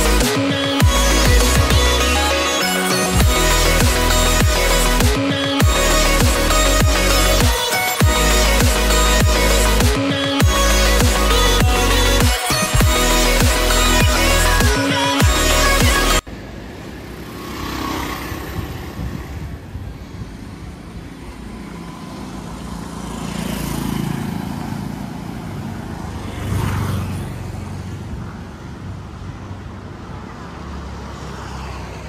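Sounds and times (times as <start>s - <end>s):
electronic dance music: 0.0s - 16.3s
vehicles passing by: 0.0s - 32.0s.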